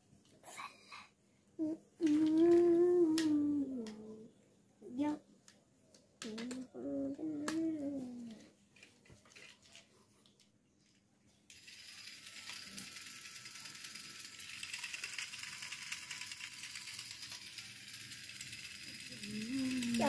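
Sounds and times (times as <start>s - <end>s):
toy train motor whirring: 1.6s - 4.1s, 6.2s - 9.5s, 11.5s - 20.0s.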